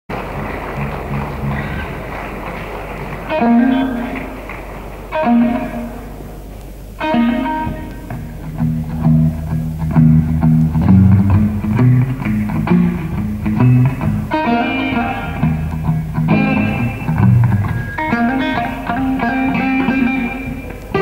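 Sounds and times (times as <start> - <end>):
bass line: 0.1 - 2.1, 7.0 - 21.0
electric guitar chords and licks: 3.2 - 21.0.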